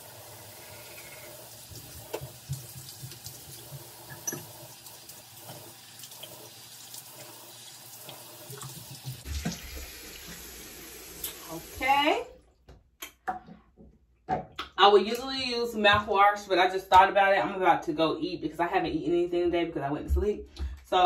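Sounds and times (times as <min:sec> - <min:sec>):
tap running into sink: 0:01.7 - 0:04.6, 0:08.1 - 0:10.4.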